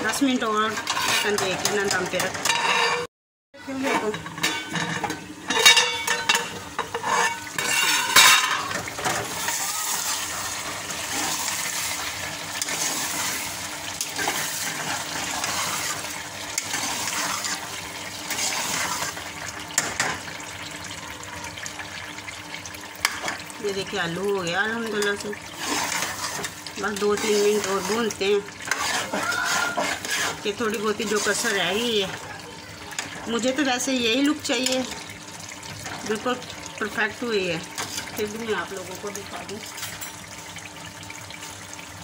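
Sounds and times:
metal ladle scraping metal pot: 0.7 - 3.1, 3.7 - 12.0, 25.0 - 32.2
vegetables sizzling in fat: 3.6 - 42.0.

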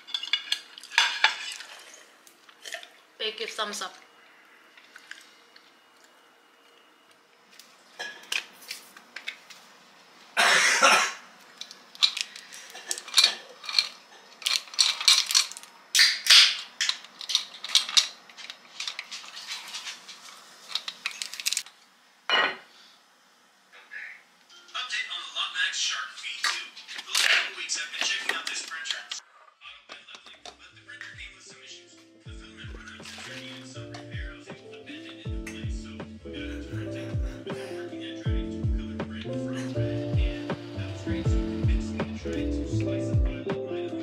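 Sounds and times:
kitchen items clinking and clattering: 0.0 - 3.0, 7.9 - 9.4, 11.6 - 21.6, 32.8 - 34.1.

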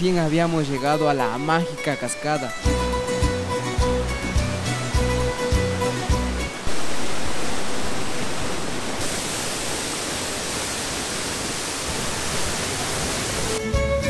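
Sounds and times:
background music: 0.0 - 6.6, 13.4 - 14.0
waterfall rushing: 0.0 - 13.6.

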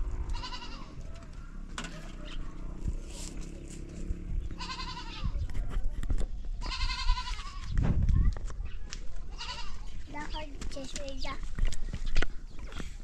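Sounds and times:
farm animal bleating: 0.2 - 1.1, 4.5 - 5.4, 6.6 - 7.7, 9.3 - 10.0.

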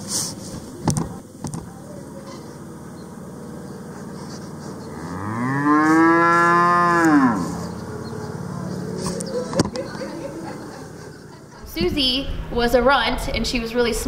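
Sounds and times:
cow mooing: 4.5 - 9.5.

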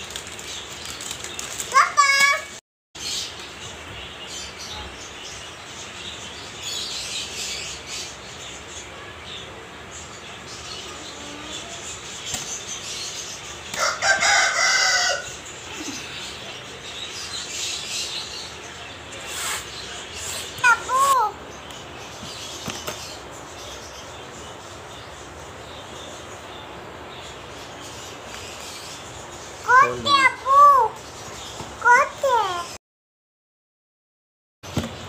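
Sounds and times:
steady background noise: 0.0 - 32.8
loud bird call: 13.7 - 16.5.

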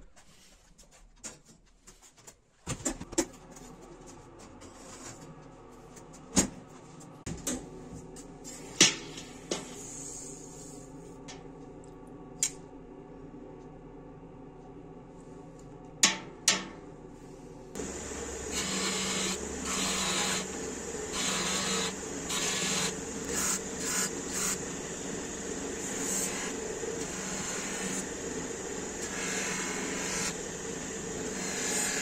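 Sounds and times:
power tool running: 17.8 - 32.0.

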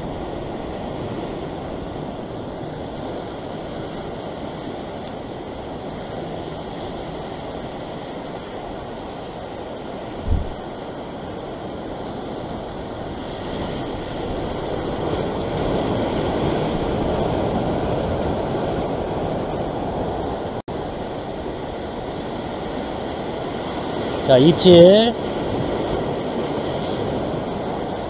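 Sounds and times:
ocean surf washing against rocks: 0.0 - 28.0.

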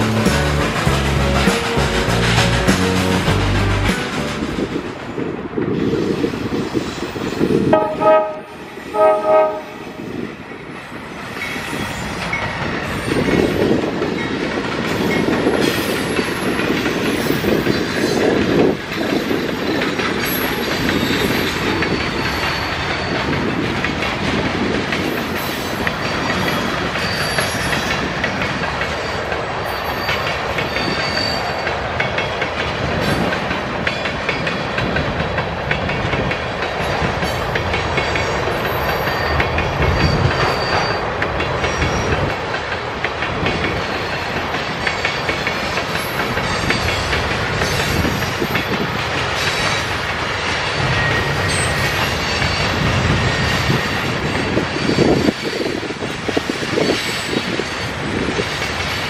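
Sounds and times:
train cars rumbling and clacking: 0.0 - 59.0
locomotive horn blasts: 7.7 - 9.9
high wheel squeals: 26.0 - 28.0, 29.0 - 31.8, 38.6 - 42.3.

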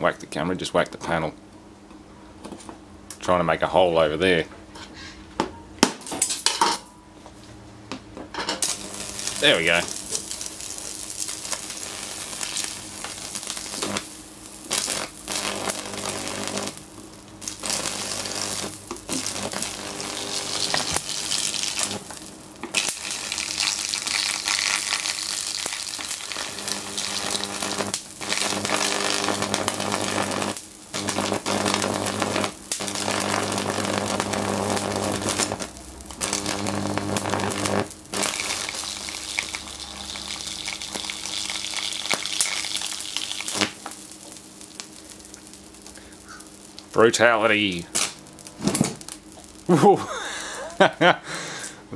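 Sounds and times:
mains hum: 0.0 - 51.9
high-voltage arc buzzing and crackling: 8.4 - 51.2.

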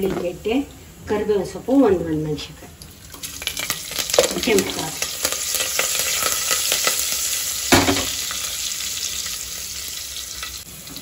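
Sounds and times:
crackles: 2.8 - 7.5
spices sizzling in hot oil: 2.8 - 11.0.

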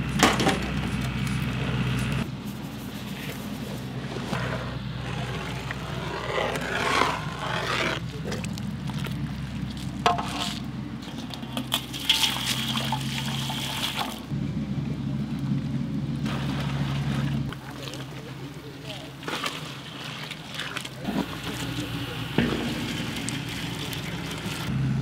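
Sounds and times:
steady low hum: 0.0 - 25.0
liquid sloshing in metal pot: 10.1 - 14.3.

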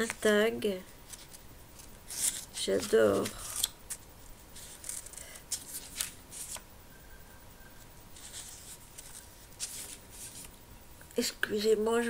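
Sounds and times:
paper pages rustling: 1.0 - 6.6, 8.1 - 10.6.

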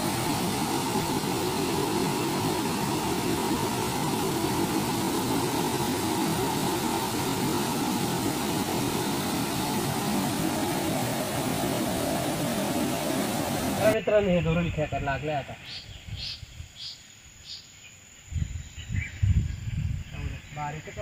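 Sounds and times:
waterfall rushing: 0.0 - 14.0.

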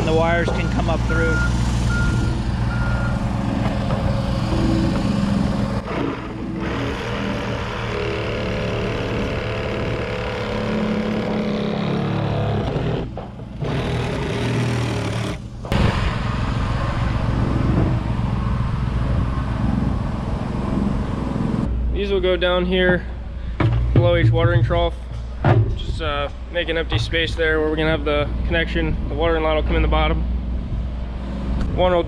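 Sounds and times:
machine engine running: 0.0 - 21.7
reciprocating saw cutting plastic: 5.8 - 15.7.

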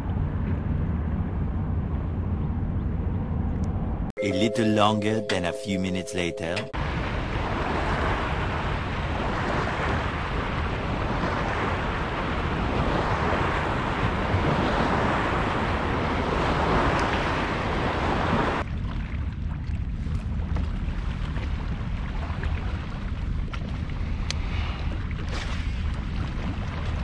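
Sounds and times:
water rushing: 6.2 - 18.7
wind buffeting microphone: 6.8 - 27.0.

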